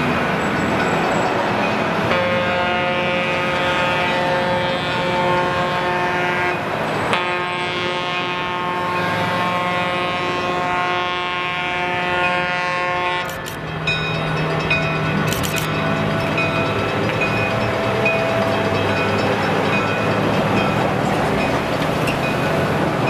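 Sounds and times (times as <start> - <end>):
horn blasts: 2.0 - 13.6
sharp clicks: 13.2 - 13.6, 15.3 - 15.8
engine running: 13.2 - 23.0.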